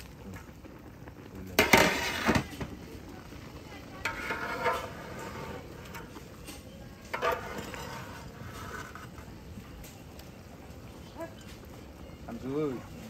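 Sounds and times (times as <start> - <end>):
ladle clattering: 1.5 - 3.1, 3.8 - 10.1
metal ladle stirring and scraping pot: 1.6 - 2.8, 3.8 - 10.0.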